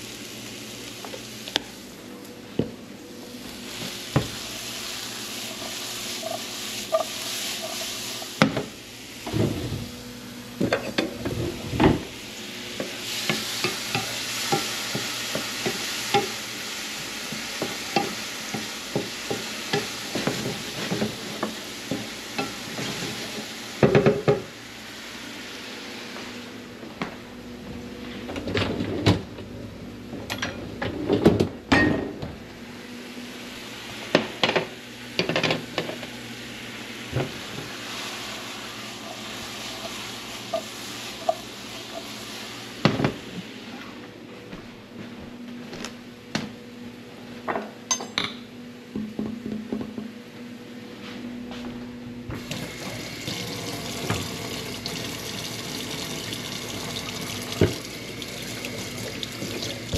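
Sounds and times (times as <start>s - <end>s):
corn sizzling in a frying pan: 0.0s - 11.2s, 12.0s - 26.3s, 35.2s - 43.8s, 52.4s - 59.9s
dishes clinking: 47.9s - 48.4s
tap running into metal sink: 56.9s - 58.3s.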